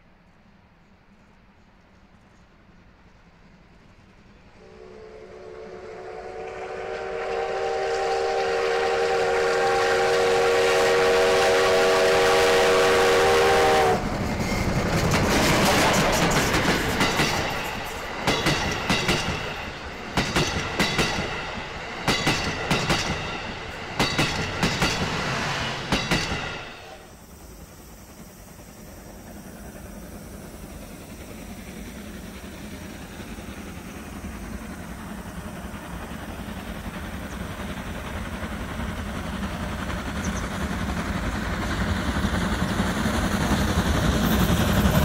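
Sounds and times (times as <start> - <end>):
steam locomotive passing: 0.0 - 45.0
steam whistle: 4.6 - 14.1
train wheels clattering on rail joints: 12.4 - 45.0.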